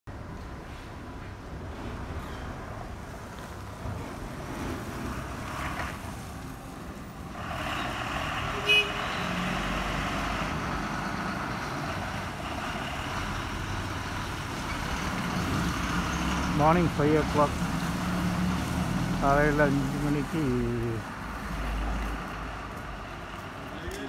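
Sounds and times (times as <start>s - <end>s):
bus engines and traffic: 0.1s - 24.0s
horn toot: 8.5s - 9.4s.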